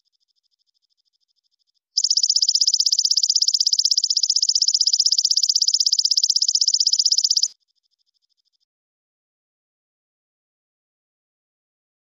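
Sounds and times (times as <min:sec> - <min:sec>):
insect chirping rapidly: 0:02.0 - 0:07.5.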